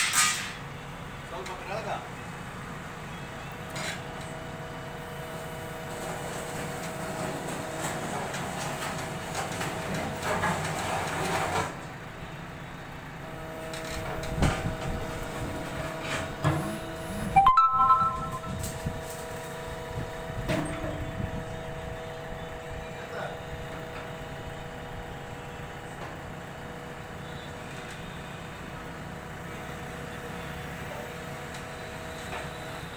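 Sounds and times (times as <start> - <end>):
diesel engine whine: 11.8 - 32.9.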